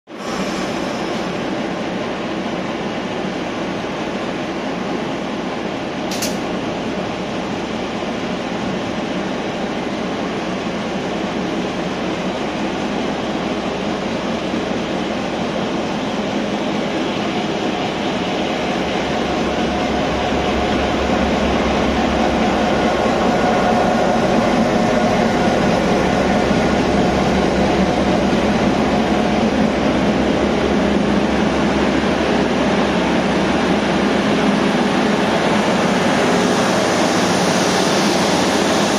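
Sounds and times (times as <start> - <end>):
train coaches rolling by: 0.1 - 38.9
locomotive engine humming: 0.4 - 38.9.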